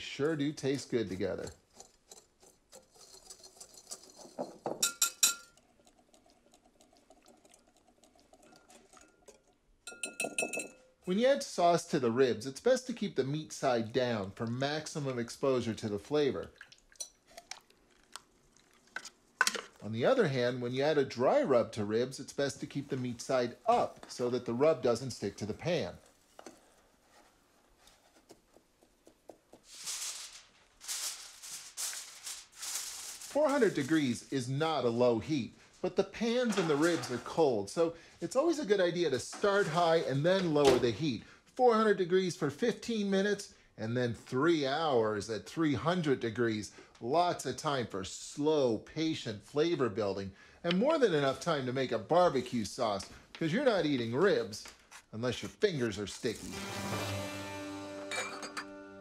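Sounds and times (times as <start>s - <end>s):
whisk clinking against glass: 1.7s - 5.6s, 8.4s - 10.9s, 58.1s - 58.8s
aluminium foil crinkling: 29.6s - 34.2s.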